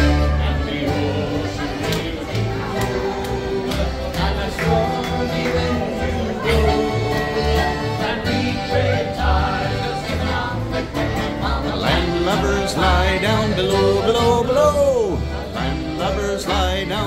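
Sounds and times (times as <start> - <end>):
folk band playing: 0.0 - 17.0
person singing: 11.4 - 17.0.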